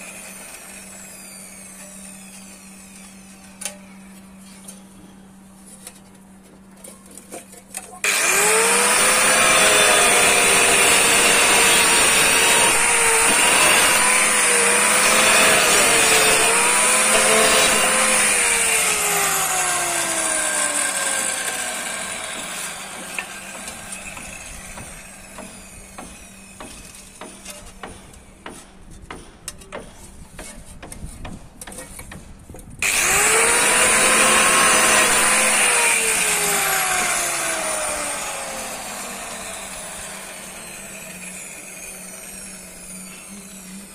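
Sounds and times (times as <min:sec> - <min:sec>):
angle grinder cutting tile: 0:08.0 - 0:27.2, 0:32.8 - 0:43.9.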